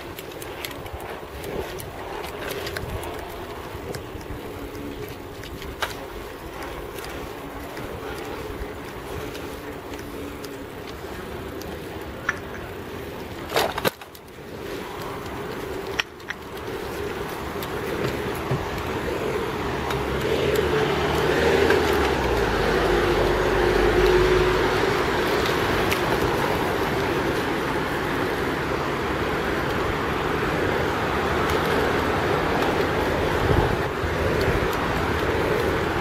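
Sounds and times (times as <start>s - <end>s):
road traffic: 0.0s - 36.0s
vehicle passing: 14.4s - 36.0s.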